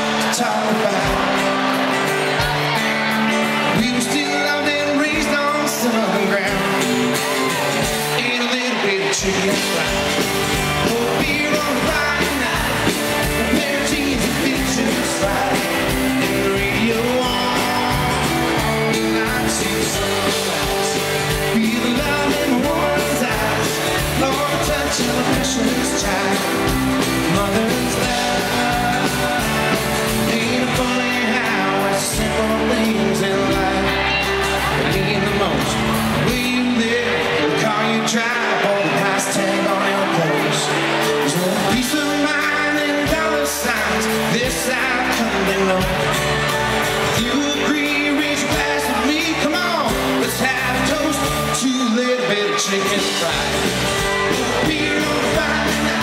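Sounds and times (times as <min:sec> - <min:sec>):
live country band playing: 0:00.0 - 0:56.0
man singing: 0:00.0 - 0:56.0.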